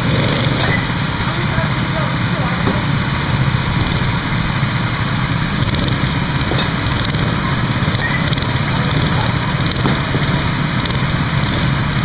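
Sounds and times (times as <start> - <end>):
go-kart engines idling: 0.0 - 12.0.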